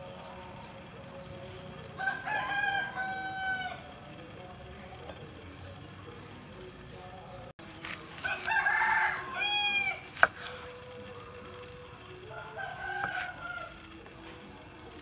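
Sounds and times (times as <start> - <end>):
rooster crowing: 2.0 - 3.9, 8.2 - 10.1, 12.3 - 13.9.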